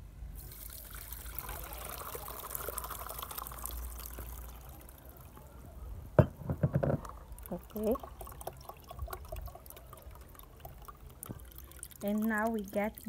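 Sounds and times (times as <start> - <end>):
liquid pouring through a sieve: 0.4 - 5.6, 7.0 - 13.0
sharp knocks: 6.2 - 7.0.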